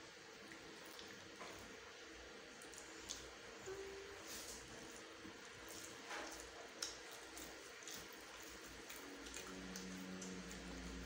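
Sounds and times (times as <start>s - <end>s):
chewing: 0.4s - 1.7s, 2.5s - 11.0s
fingers squishing noodles: 4.3s - 11.0s
small smacks and clicks: 5.8s - 10.4s.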